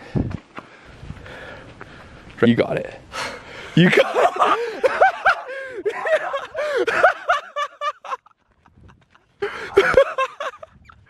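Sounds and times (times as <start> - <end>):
men laughing excitedly: 3.8 - 11.0.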